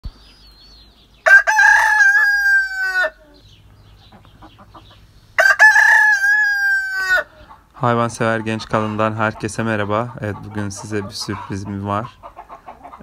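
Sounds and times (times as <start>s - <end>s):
hen clucking: 1.1s - 13.0s
rooster crowing: 1.2s - 3.2s, 5.4s - 7.4s.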